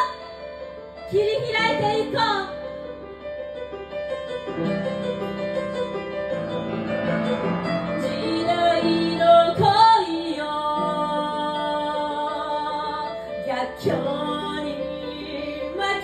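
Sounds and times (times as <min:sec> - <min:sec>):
woman singing: 0:00.0 - 0:00.4, 0:01.1 - 0:02.6, 0:08.0 - 0:16.0
piano playing held chords: 0:00.0 - 0:16.0.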